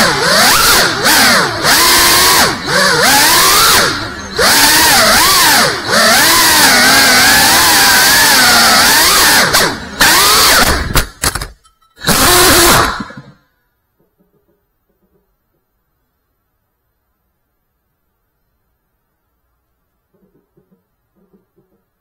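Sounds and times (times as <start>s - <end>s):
drone motors whining: 0.0s - 11.0s, 12.0s - 13.4s.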